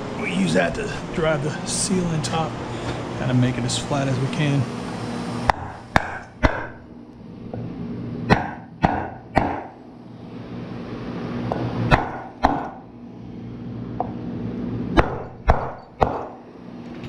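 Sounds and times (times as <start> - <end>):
hammer striking wooden board: 8.3 - 9.7, 15.0 - 16.4.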